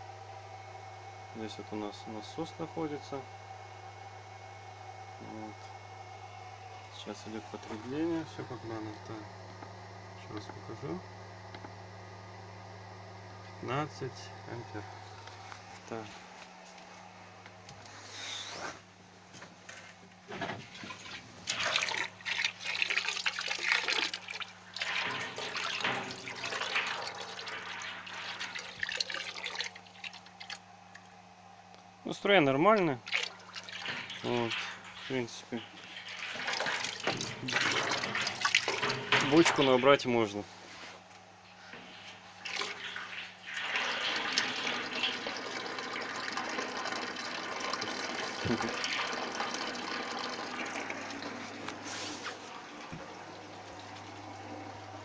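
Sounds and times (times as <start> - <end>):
water pouring into metal barrel: 20.8 - 30.6, 33.0 - 40.0, 42.1 - 54.0.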